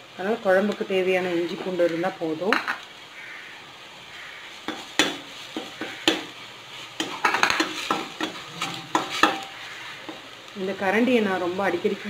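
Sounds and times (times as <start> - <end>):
faint sizzle: 0.0 - 12.0
metal spoon scraping pan: 4.5 - 11.9
spoon tapping against pan: 4.6 - 6.3, 7.0 - 10.2.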